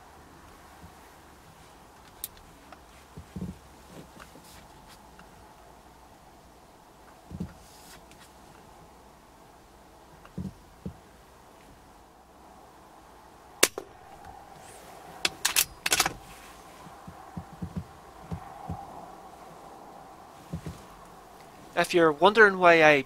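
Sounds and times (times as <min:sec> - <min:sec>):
soft knocks: 0:03.2 - 0:03.6, 0:16.8 - 0:19.0, 0:20.4 - 0:20.9.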